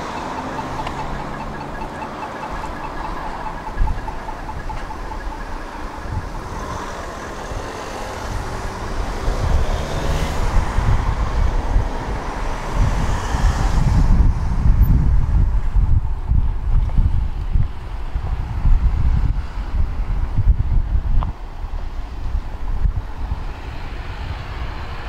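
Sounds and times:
rapid beeping: 0:00.0 - 0:07.8
tram rumbling along track: 0:00.0 - 0:13.1.

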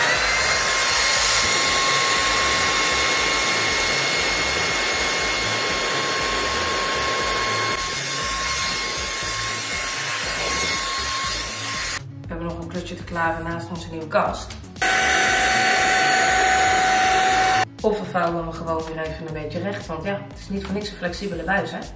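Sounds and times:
vacuum cleaner motor whine: 0:00.0 - 0:12.0, 0:14.8 - 0:17.6.

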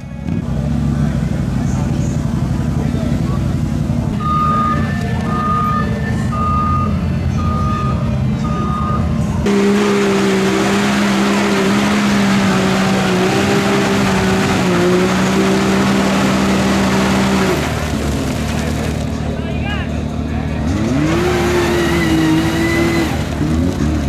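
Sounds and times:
backup alarm beeping: 0:04.2 - 0:09.2
engine at high revs: 0:09.4 - 0:19.2, 0:20.3 - 0:24.0
tyres in mud: 0:09.5 - 0:24.0.

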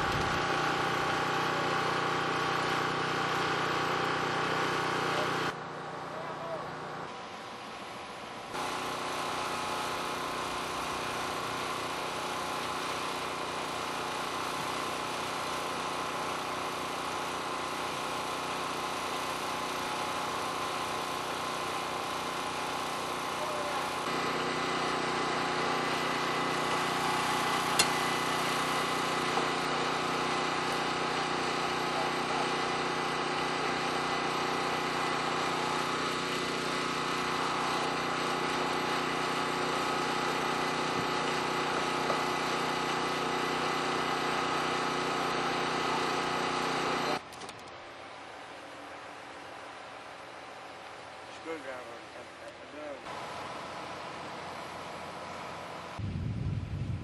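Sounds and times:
sharp click: 0:27.7 - 0:28.0.

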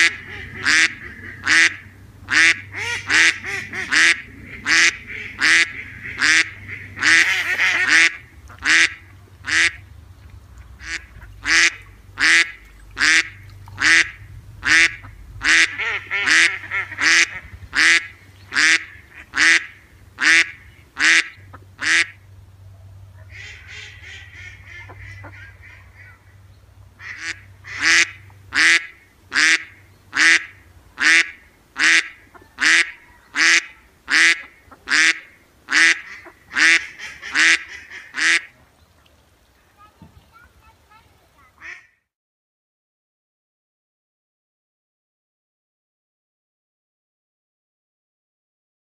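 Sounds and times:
duck quacking: 0:00.0 - 0:09.8, 0:10.8 - 0:22.2, 0:23.1 - 0:26.4, 0:27.0 - 0:38.6, 0:41.6 - 0:42.0
soft busy duck calling: 0:00.0 - 0:09.8, 0:10.6 - 0:22.2, 0:22.8 - 0:38.7, 0:41.4 - 0:42.0.

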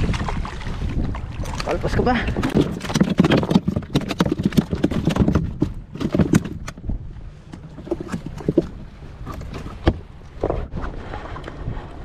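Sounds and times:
waves lapping against boat: 0:00.0 - 0:12.0
knocks and clicks: 0:02.4 - 0:06.8.

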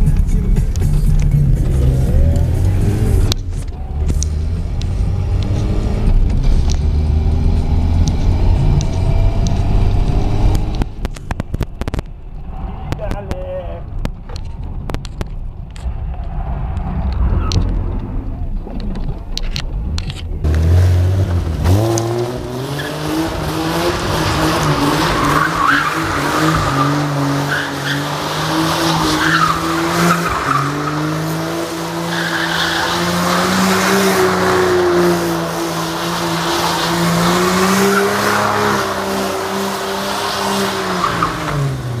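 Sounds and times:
car engine at high revs: 0:01.1 - 0:12.1, 0:20.4 - 0:42.0.

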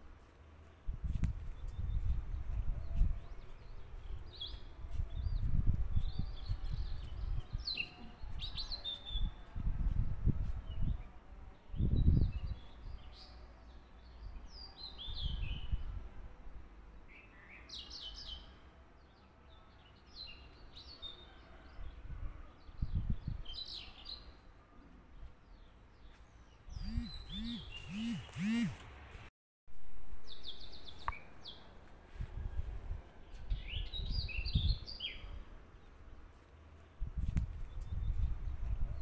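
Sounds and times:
small birds chirping: 0:25.2 - 0:28.8.

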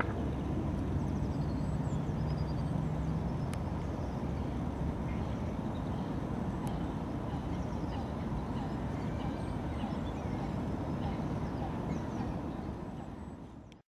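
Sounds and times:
steady low rumbling: 0:00.0 - 0:13.4.

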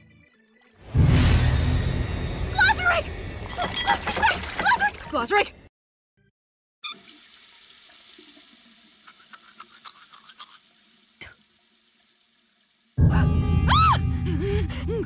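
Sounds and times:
soft watery hiss: 0:07.0 - 0:13.0.

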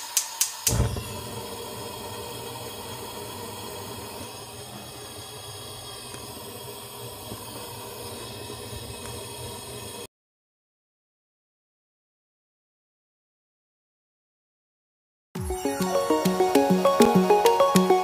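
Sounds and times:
gas burner flame hissing: 0:00.0 - 0:10.1.

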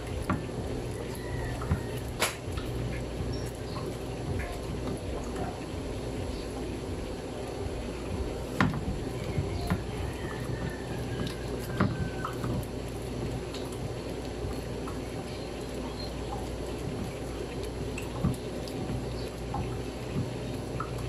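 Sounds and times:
wet squishing of butter: 0:07.7 - 0:21.0.

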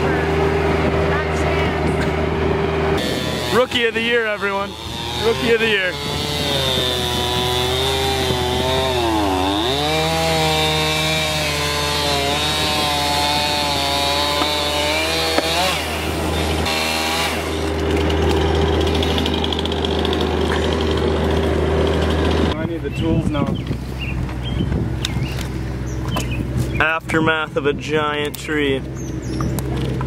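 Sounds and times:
chainsaw cutting tree trunk: 0:00.0 - 0:22.7.

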